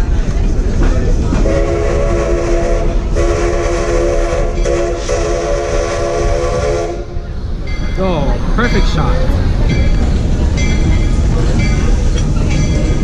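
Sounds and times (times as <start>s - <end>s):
low rumble of moving train: 0.0s - 13.0s
steam locomotive chime whistle: 1.4s - 7.1s.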